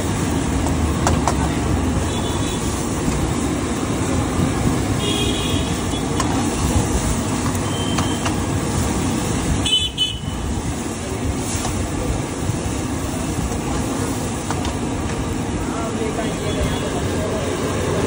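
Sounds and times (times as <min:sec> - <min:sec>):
traffic noise: 0:00.0 - 0:18.0
vehicle horn toots: 0:05.0 - 0:06.1, 0:09.6 - 0:10.4.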